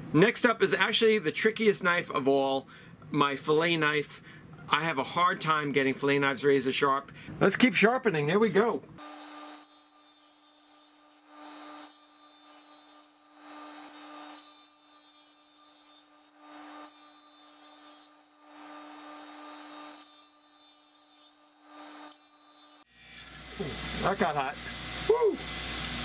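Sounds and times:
bench grinder humming: 9.0 - 26.0.

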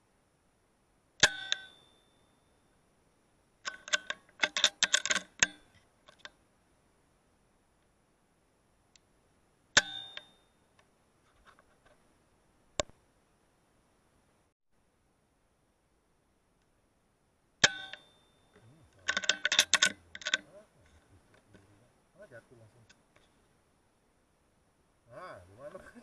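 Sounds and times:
sharp clicks with chattering ring: 1.2 - 2.2, 9.8 - 10.4, 17.6 - 20.5.

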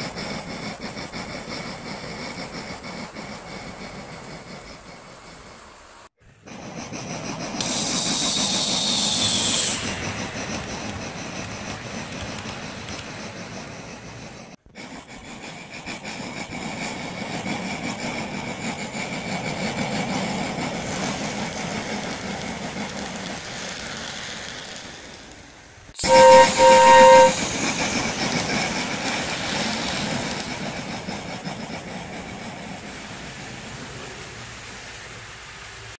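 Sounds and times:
model train rolling rattle: 0.0 - 36.0
short train toots: 7.6 - 12.9, 26.0 - 30.3
loud hiss: 7.6 - 14.6, 19.0 - 36.0.

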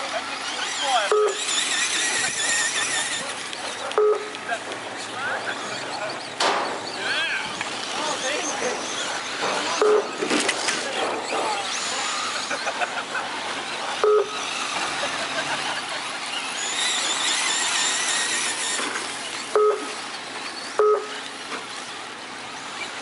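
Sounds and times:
rc truck motors whining: 0.0 - 23.0
two-tone electronic beeps: 1.1 - 1.6, 4.0 - 4.4, 9.8 - 10.2, 14.0 - 14.4, 19.5 - 20.0, 20.7 - 21.2.

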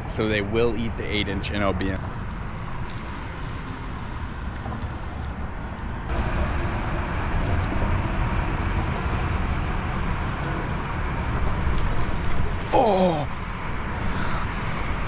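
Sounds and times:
low fluttering rumble: 0.0 - 15.0
hiss: 2.9 - 5.2.

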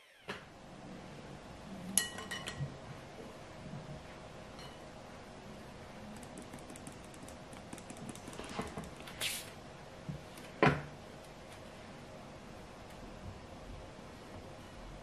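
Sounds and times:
powder ticking through a mesh sieve: 6.1 - 9.2.

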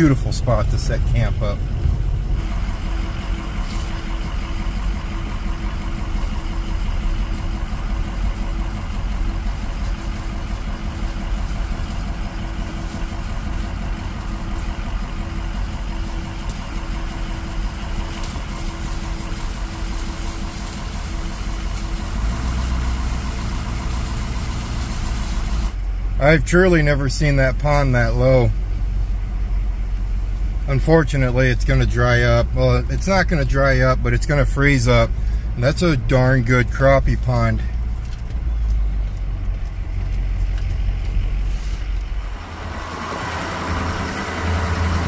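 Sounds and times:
truck engine and tyre drone: 0.0 - 45.0.

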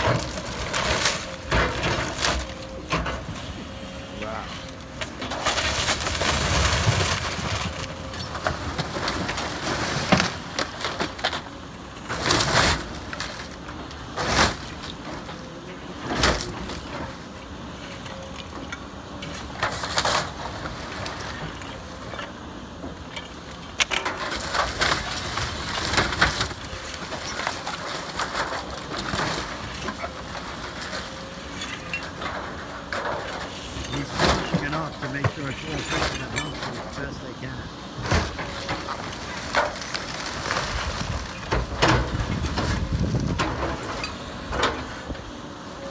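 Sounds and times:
wood cracking and crashing down: 0.0 - 3.0, 4.2 - 15.4, 23.0 - 44.9.

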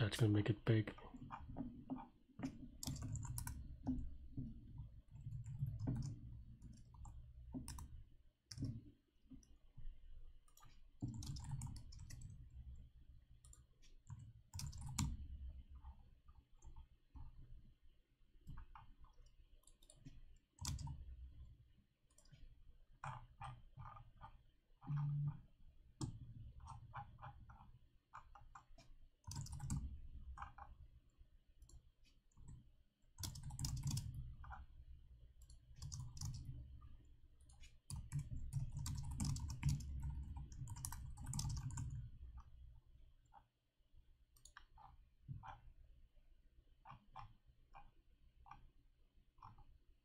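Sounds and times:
keyboard typing: 1.0 - 9.6, 10.4 - 17.5, 18.4 - 21.5, 22.1 - 30.8, 31.6 - 34.8, 35.4 - 42.5.

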